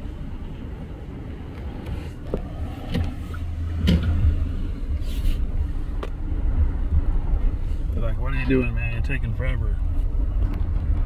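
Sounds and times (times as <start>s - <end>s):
car cabin rumble: 0.0s - 11.0s.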